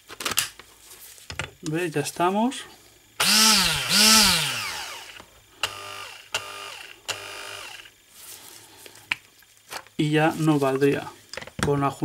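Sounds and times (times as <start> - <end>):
hand blender motor whirring: 3.2 - 8.0.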